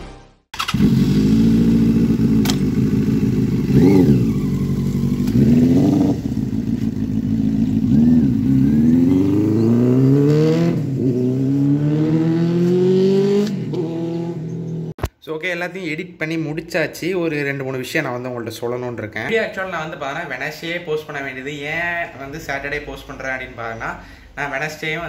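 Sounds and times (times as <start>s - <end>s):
motorcycle accelerating: 0.6s - 15.0s
motorcycle engine revving: 0.6s - 15.0s.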